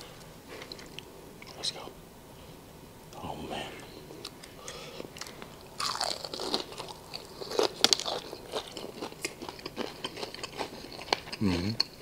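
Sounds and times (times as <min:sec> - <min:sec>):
crunching fried chicken: 0:04.2 - 0:12.0.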